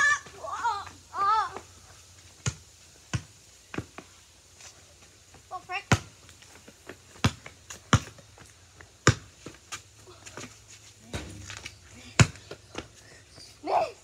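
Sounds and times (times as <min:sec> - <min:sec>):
child shouting: 0:00.0 - 0:01.6
basketball bouncing on pavement: 0:07.1 - 0:08.2, 0:09.0 - 0:09.6, 0:11.2 - 0:12.9.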